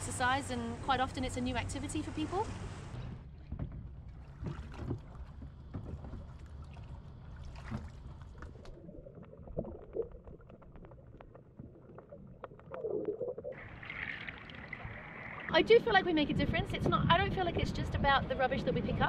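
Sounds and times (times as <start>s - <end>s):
water splashing and dripping: 3.4s - 15.6s.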